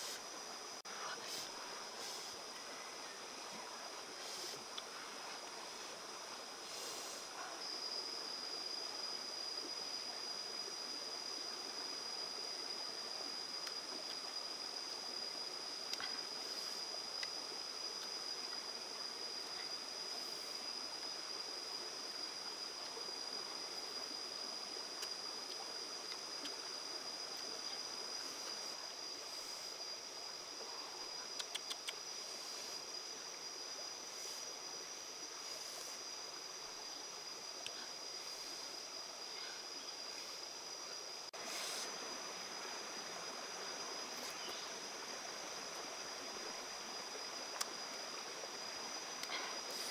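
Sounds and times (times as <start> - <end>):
stream running over rocks: 0.0 - 49.9
faint clicks: 31.4 - 32.0.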